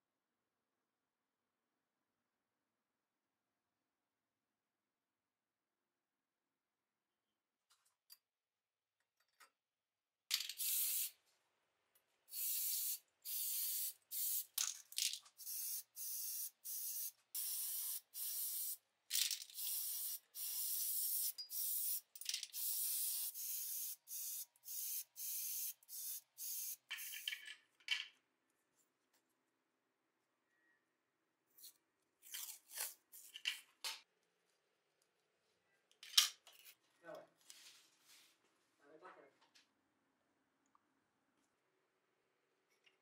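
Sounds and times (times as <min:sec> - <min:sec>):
spray paint hissing: 0:10.5 - 0:11.2, 0:12.3 - 0:14.6, 0:15.4 - 0:18.8, 0:19.5 - 0:27.3.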